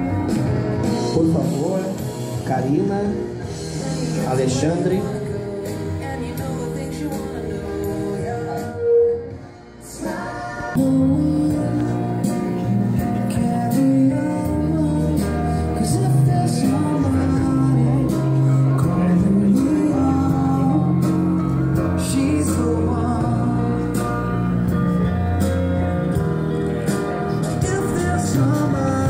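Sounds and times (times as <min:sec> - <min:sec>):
person singing: 0:03.6 - 0:25.0, 0:26.0 - 0:29.0
held bass notes: 0:10.5 - 0:29.0.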